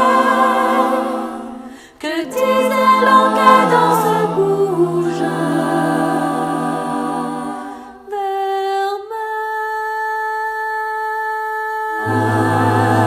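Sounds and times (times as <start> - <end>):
choir singing chords: 0.0 - 8.2, 12.0 - 13.0.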